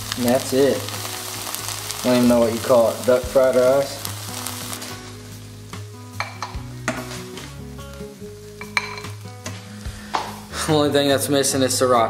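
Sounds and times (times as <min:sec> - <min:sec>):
rice sizzling in a pan: 0:00.0 - 0:11.6
soft background music: 0:00.0 - 0:12.0
metal spoon clinking on a pan: 0:06.2 - 0:06.6, 0:08.6 - 0:09.1.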